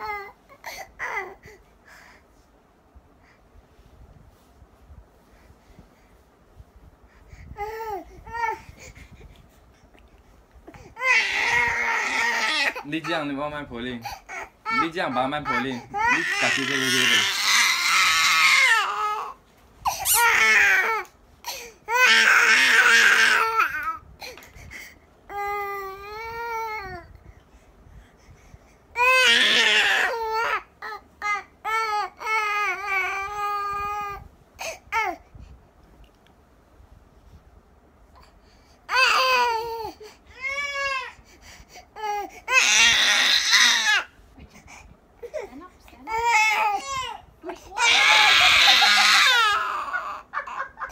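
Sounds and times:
baby crying: 0:11.0 - 0:12.9, 0:14.1 - 0:24.0, 0:29.0 - 0:34.2, 0:38.9 - 0:41.2, 0:42.0 - 0:44.1, 0:46.1 - 0:47.2, 0:47.8 - 0:50.9
baby babbling and squealing: 0:19.9 - 0:21.0.

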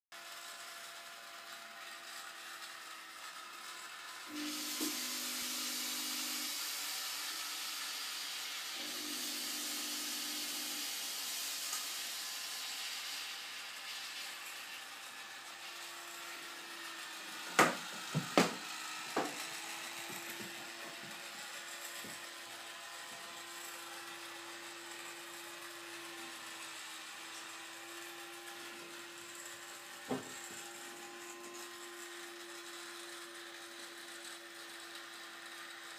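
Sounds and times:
mechanical hum with steady tone: 0:00.2 - 0:35.9
smoke effect hissing: 0:04.3 - 0:13.2.

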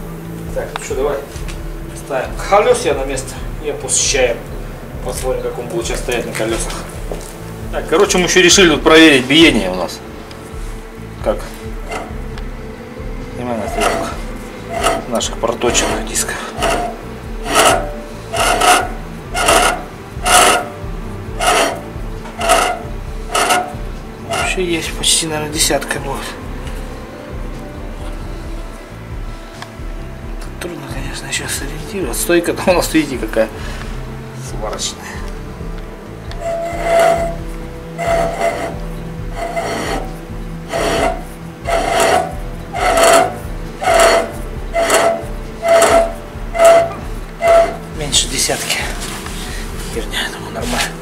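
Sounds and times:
brake disc scraping rub: 0:05.9 - 0:27.0, 0:33.5 - 0:51.0.

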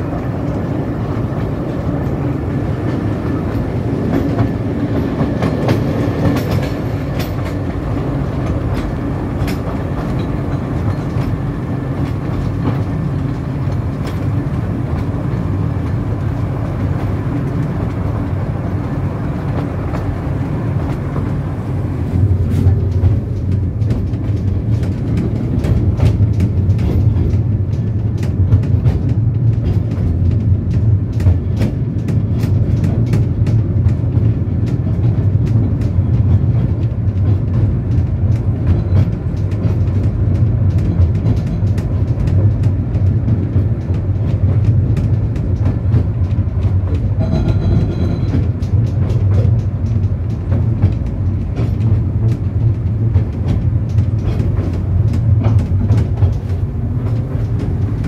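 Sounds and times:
train running rumble: 0:00.0 - 0:58.0
wheels clicking over rail joints: 0:00.0 - 0:58.0
brief high-pitched tone: 0:47.2 - 0:48.4.

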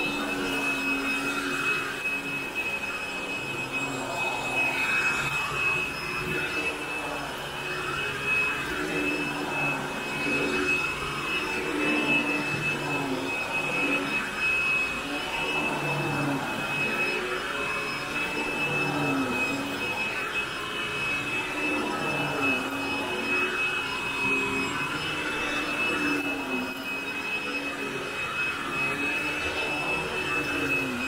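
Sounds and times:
vacuum cleaner running: 0:00.0 - 0:31.0.

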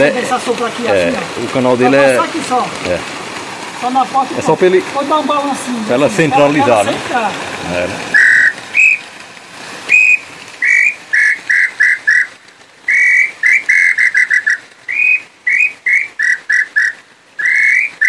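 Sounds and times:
wooden bird call whistle: 0:08.1 - 0:09.0, 0:09.9 - 0:18.0.

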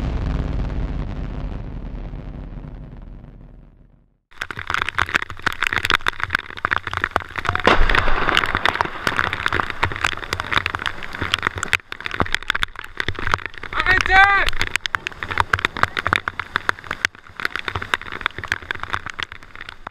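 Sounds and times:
rain patter on river: 0:04.3 - 0:19.9.

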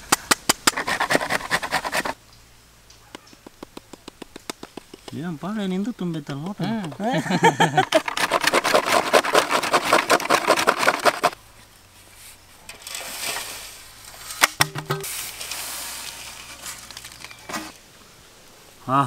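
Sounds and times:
coconut grating strokes: 0:00.6 - 0:02.2, 0:07.7 - 0:11.4
soft scraping: 0:11.9 - 0:14.4, 0:15.0 - 0:17.8
sharp knocks: 0:14.4 - 0:15.1.

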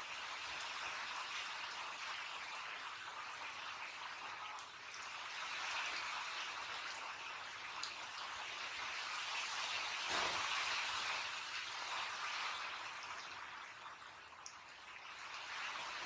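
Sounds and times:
heavy rain: 0:08.7 - 0:13.4.

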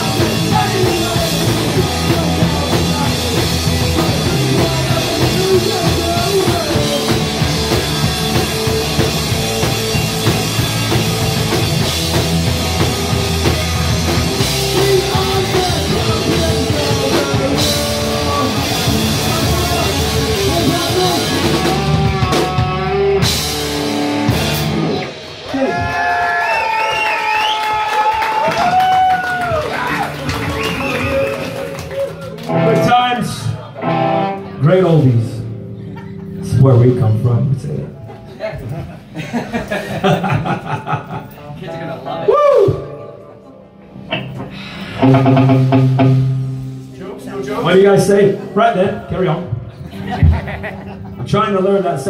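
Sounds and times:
person singing: 0:00.0 - 0:07.8, 0:14.4 - 0:23.0
bass guitar: 0:00.0 - 0:26.5, 0:29.4 - 0:39.8, 0:40.4 - 0:52.0
electric guitar: 0:00.0 - 0:27.0, 0:28.4 - 0:52.0
drum kit: 0:00.0 - 0:33.0, 0:44.0 - 0:48.2, 0:49.4 - 0:52.0.

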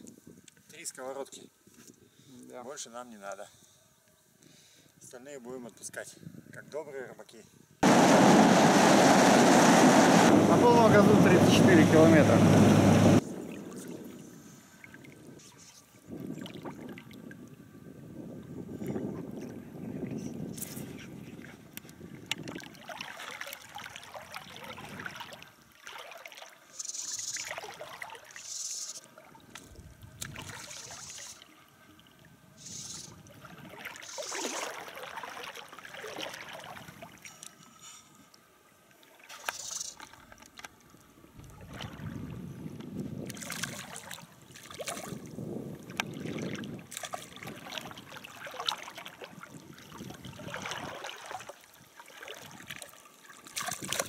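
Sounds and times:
water sloshing around wading legs: 0:21.3 - 0:32.3, 0:33.2 - 0:37.8, 0:39.0 - 0:54.0.

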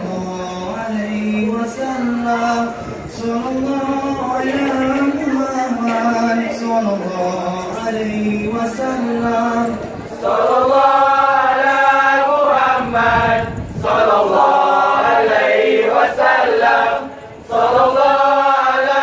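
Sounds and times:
group chanting in unison: 0:10.1 - 0:19.0.

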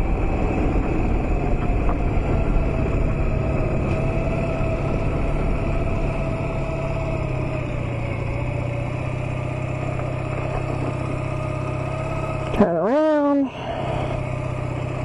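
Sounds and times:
wind noise on microphone: 0:00.0 - 0:06.3
motorcycle engine running: 0:00.0 - 0:15.0.

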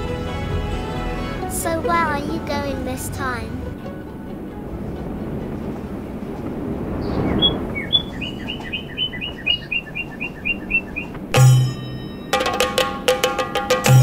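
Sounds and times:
bird chirping rapidly: 0:07.0 - 0:11.2.

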